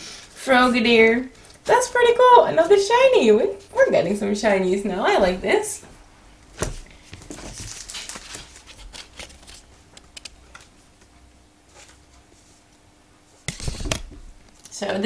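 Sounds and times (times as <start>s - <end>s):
cards rustling and clicking: 7.2s - 10.8s.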